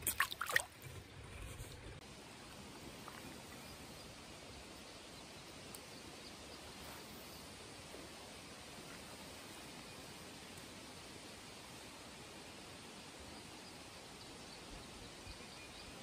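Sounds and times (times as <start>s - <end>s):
fish splashing in water: 0.0s - 0.8s
creek water flowing: 0.0s - 13.1s.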